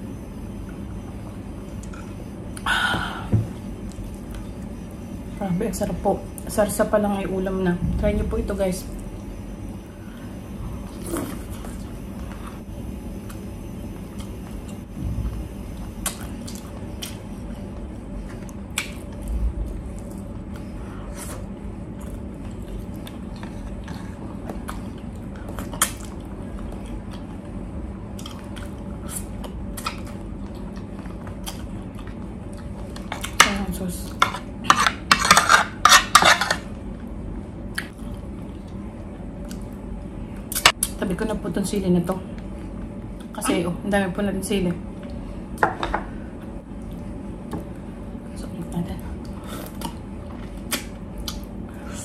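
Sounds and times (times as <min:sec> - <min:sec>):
chewing and handling food: 0:15.9 - 0:33.4, 0:37.7 - 0:41.0.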